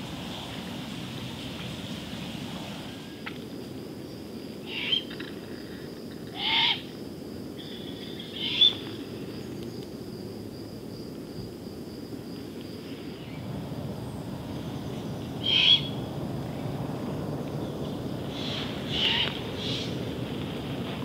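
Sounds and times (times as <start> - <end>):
owl hoarse screeches: 18.4 - 19.8.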